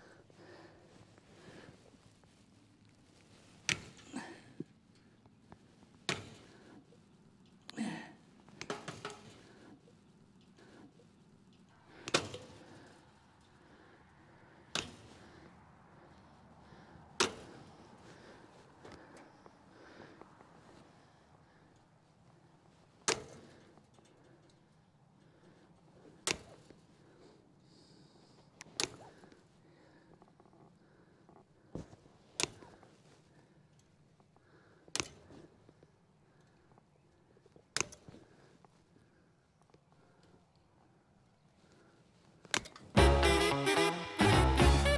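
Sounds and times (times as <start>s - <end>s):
faint outdoor background: 0.0s - 44.9s
hand tool snapping wire: 12.0s - 12.6s, 14.7s - 15.1s, 23.0s - 23.6s, 26.2s - 26.8s, 34.9s - 35.3s, 37.8s - 38.1s.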